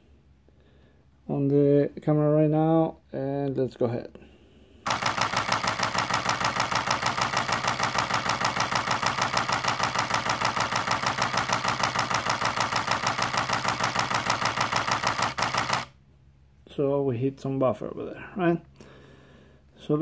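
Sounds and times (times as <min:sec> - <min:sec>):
camera shutter burst: 0:04.9 - 0:16.0.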